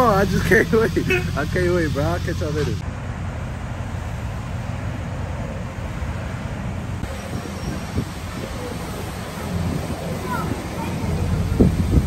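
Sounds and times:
pickup truck engine rumbling: 0.0 - 12.0.

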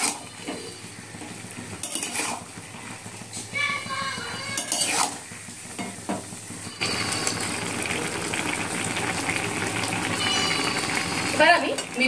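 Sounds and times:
sizzling hiss of cooking liquid: 1.0 - 12.0
spatula clinking on metal pan: 4.4 - 5.1.

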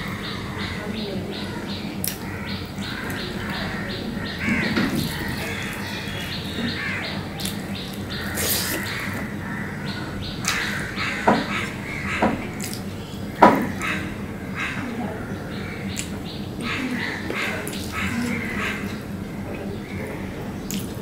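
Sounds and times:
bird chirps: 0.0 - 19.2
chewing food: 4.3 - 9.3, 12.4 - 12.9.

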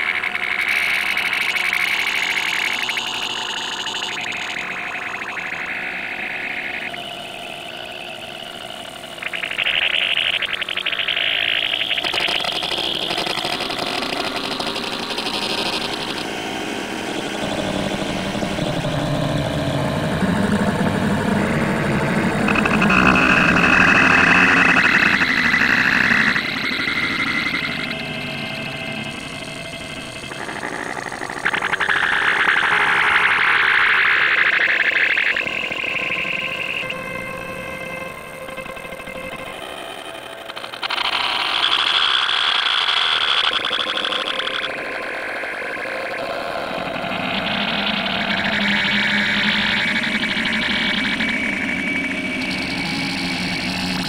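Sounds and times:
distorted buzzing cartoon audio: 20.4 - 29.0.

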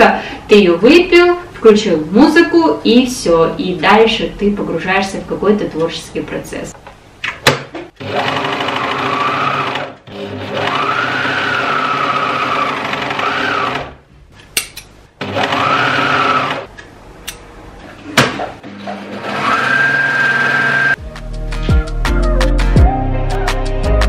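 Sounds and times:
electric sewing machine stitching: 8.0 - 14.0, 15.2 - 16.7, 18.6 - 21.0.

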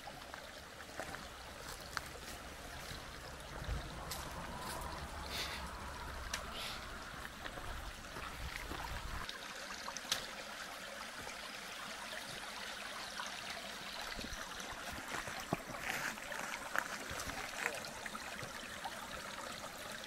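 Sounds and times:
stream trickling over rocks: 0.0 - 20.0
footsteps on stones: 0.9 - 3.1, 14.8 - 17.7
low rumble: 3.2 - 9.2.

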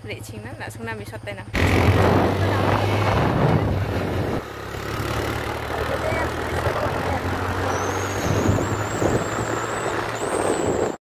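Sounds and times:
motorcycle engine running: 0.0 - 11.0
wind rushing over microphone: 1.6 - 4.6, 6.4 - 11.0.

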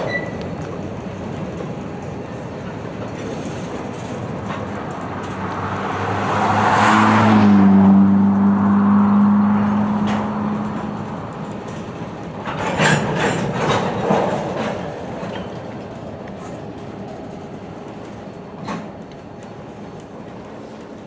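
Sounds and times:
wheel clacks over rail joints: 0.0 - 5.7, 10.0 - 21.0
engine hum: 0.0 - 21.0
freight cars rolling: 0.0 - 21.0.

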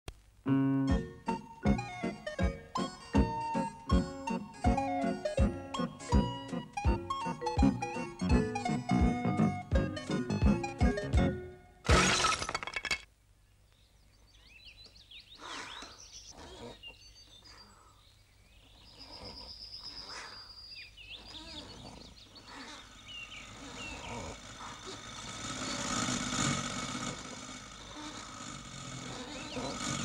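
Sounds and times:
birds chirping: 13.4 - 26.8, 28.9 - 30.0.

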